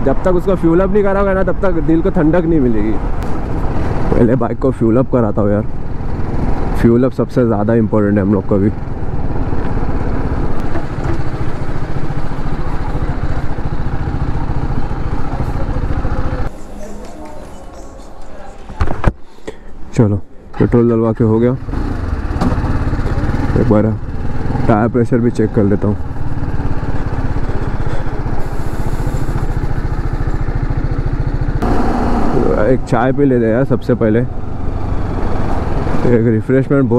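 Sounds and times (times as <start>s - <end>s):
motorcycle engine running: 7.7s - 16.6s, 21.3s - 36.2s
loud rushing noise: 31.6s - 33.4s.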